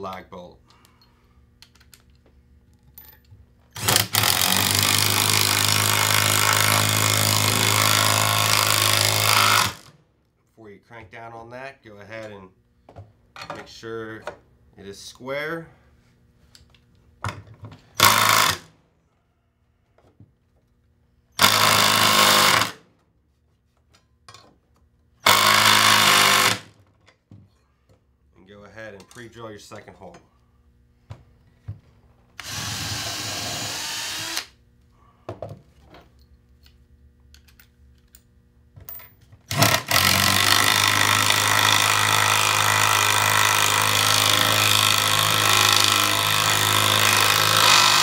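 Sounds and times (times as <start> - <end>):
impact driver driving bolt: 39.5 - 41.4.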